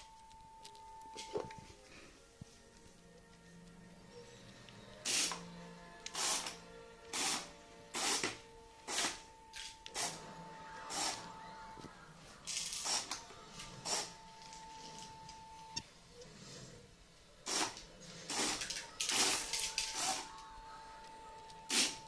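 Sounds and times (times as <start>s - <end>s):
toy train motor whining: 5.0s - 8.3s, 10.9s - 11.3s, 17.4s - 20.5s.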